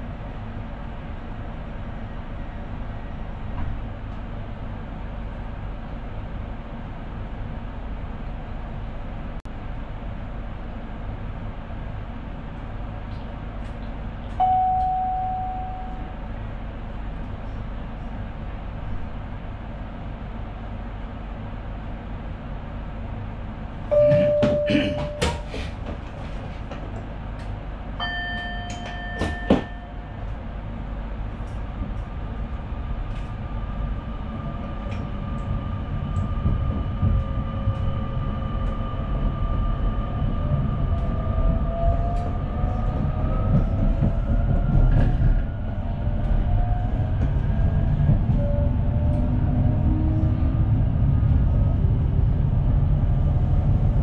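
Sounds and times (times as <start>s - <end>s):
train running rumble: 0.0s - 54.0s
single steady tone: 14.4s - 16.2s, 23.9s - 25.4s.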